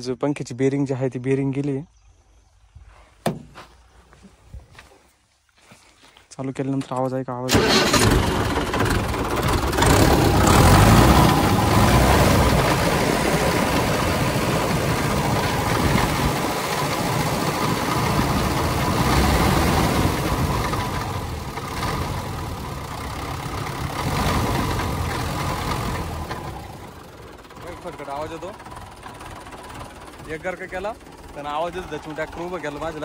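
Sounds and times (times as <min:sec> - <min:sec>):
tractor diesel engine running: 0:07.4 - 0:33.0.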